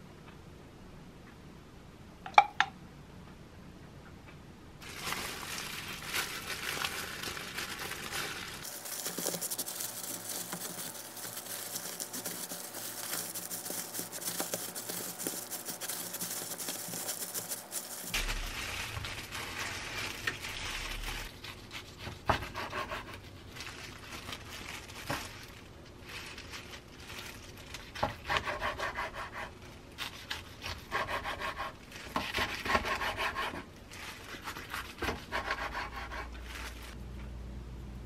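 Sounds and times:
plastic gloves crinkling: 4.8 - 28.4, 31.7 - 32.7, 33.6 - 35.2, 36.2 - 37.0.

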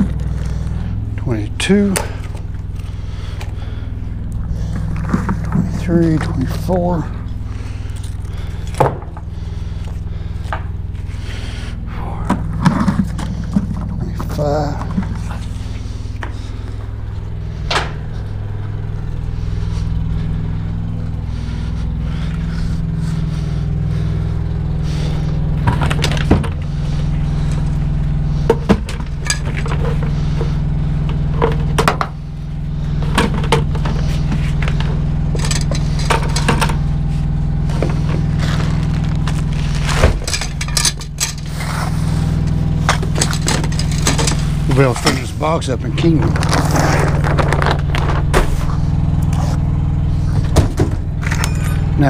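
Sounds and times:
diesel truck engine idling: 0.0 - 52.0
metal buckles clanking and rattling: 28.5 - 30.5, 33.0 - 36.9, 39.9 - 41.6, 42.8 - 45.4, 50.4 - 52.0.

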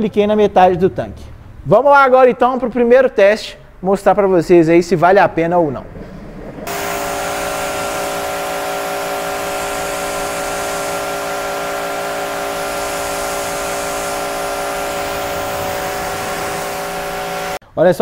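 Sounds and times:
pressure washer motor humming: 6.7 - 17.6
water jet hissing: 6.7 - 17.6.

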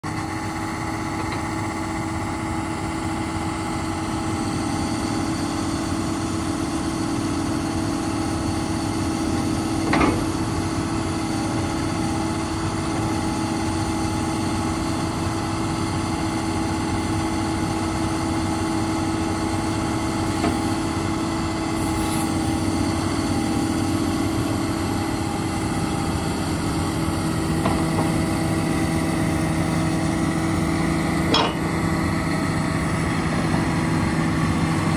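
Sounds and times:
excavator diesel engine running: 0.0 - 34.9.

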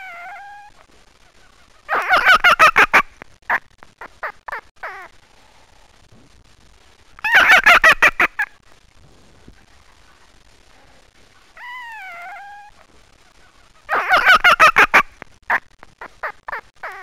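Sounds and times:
fox drawn-out whine: 0.0 - 0.9, 9.6 - 12.9.

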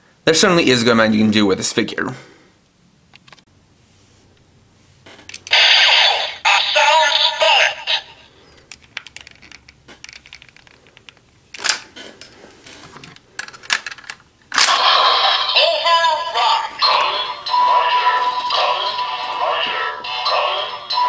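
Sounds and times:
toy electronic voice announcement: 5.5 - 8.3, 14.7 - 21.0
toy music sound effects: 5.5 - 8.3, 14.7 - 21.0
plastic toy clicks and snaps: 13.4 - 14.8.

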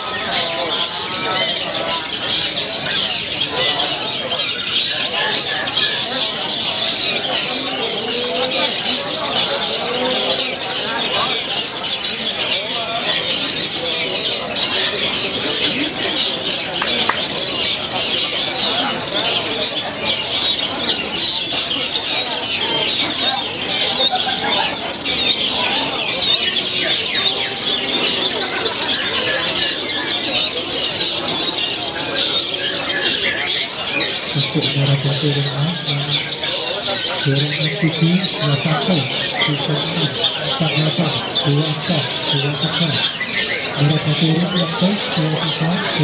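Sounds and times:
birds chirping and calling: 0.0 - 46.0
faint murmur of voices: 0.0 - 46.0.

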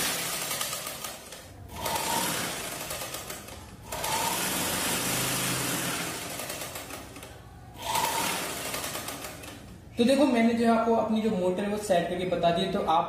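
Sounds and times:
sewing machine running: 0.0 - 9.8.

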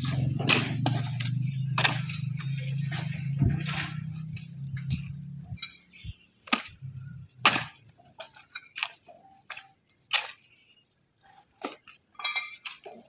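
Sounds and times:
low hum: 0.0 - 7.5.

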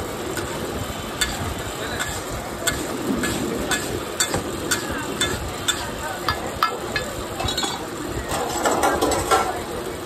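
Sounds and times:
gravy sizzling and bubbling: 0.0 - 10.0
metal spatula scraping a pan: 1.2 - 5.9.

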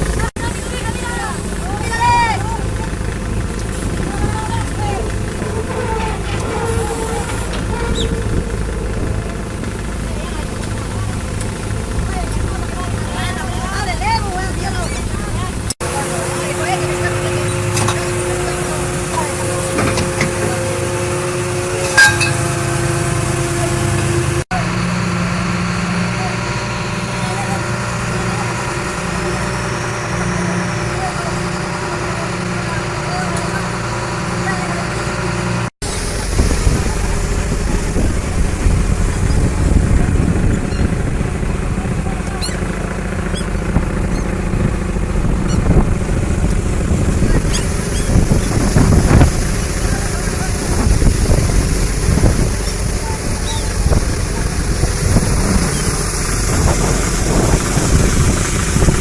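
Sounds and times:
boat engine humming: 0.0 - 59.0
seagulls calling: 4.1 - 11.3, 38.9 - 46.0, 47.0 - 48.8, 52.6 - 54.5
metal gear clanking on deck: 21.8 - 22.5.

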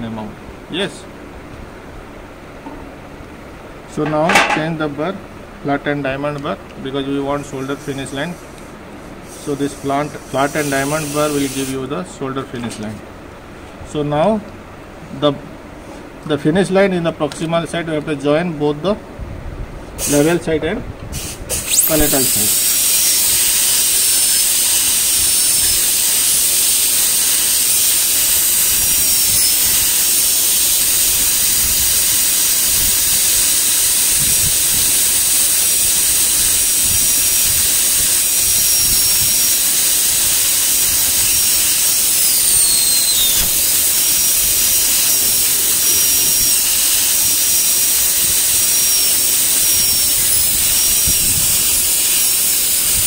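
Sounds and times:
dental drill whining: 7.2 - 8.6, 9.2 - 11.8, 21.2 - 53.0.

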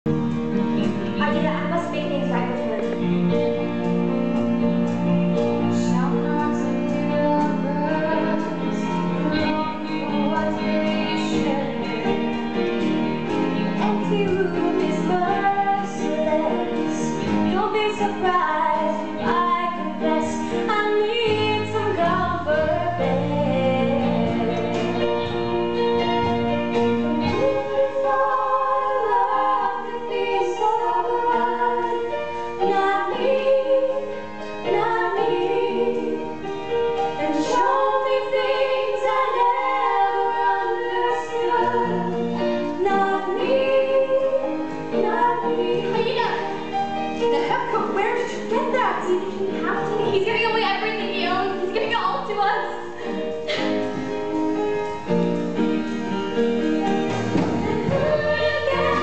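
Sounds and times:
instrumental accompaniment: 0.1 - 59.0
woman singing: 5.7 - 12.4, 13.8 - 25.3, 27.2 - 36.3, 37.2 - 46.6, 47.2 - 52.9, 57.5 - 59.0.

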